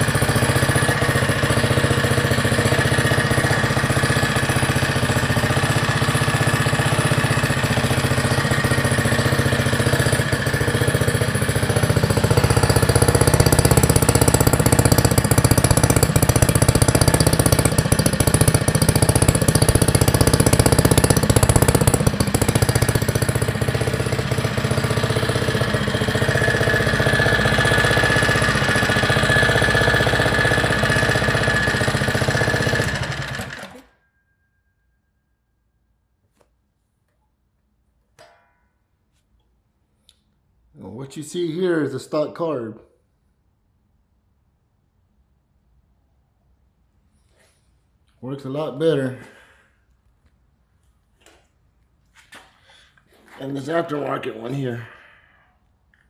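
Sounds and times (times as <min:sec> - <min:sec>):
mini bike engine running: 0:00.0 - 0:34.0.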